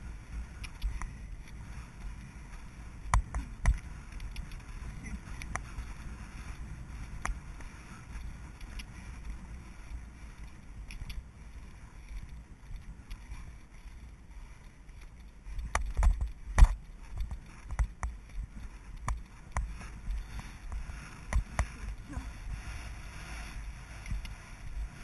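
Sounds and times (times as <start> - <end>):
low rumble: 18.4 - 25.0.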